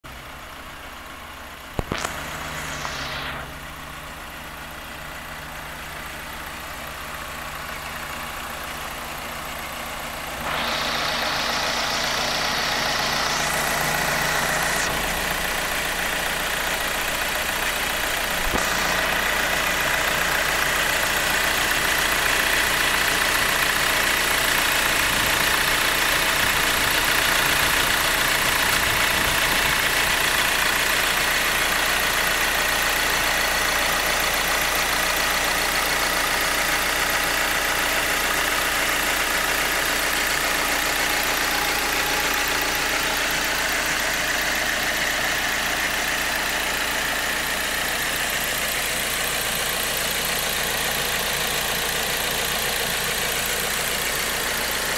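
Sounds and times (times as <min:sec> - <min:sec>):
diesel engine idling: 0:00.1 - 0:54.9
sharp click: 0:01.8 - 0:03.4
thin steady whine: 0:01.8 - 0:04.1, 0:10.2 - 0:20.9.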